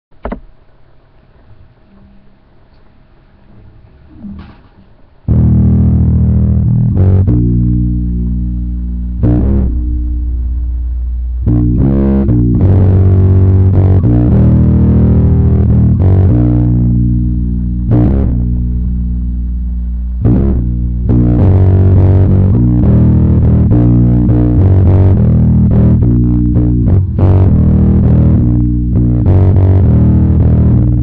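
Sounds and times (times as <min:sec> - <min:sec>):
electric bass guitar low notes: 0:00.1 - 0:31.0.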